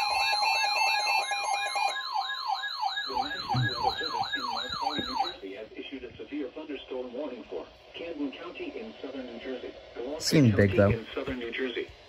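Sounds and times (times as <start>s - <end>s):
warbling siren tone: 0.0s - 5.4s
beep tones: 3.1s - 5.4s
broadcast voice: 3.1s - 9.4s, 10.2s - 11.8s.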